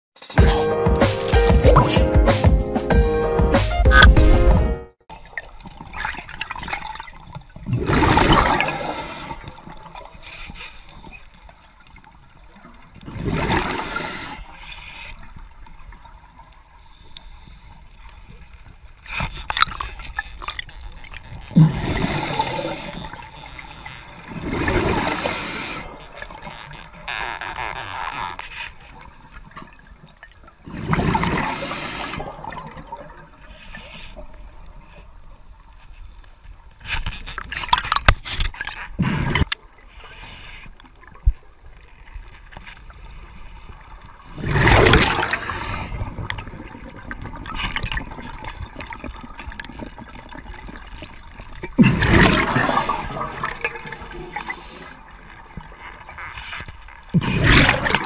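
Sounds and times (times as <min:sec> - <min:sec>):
regulator bubbling underwater: 0:44.2 - 0:56.1.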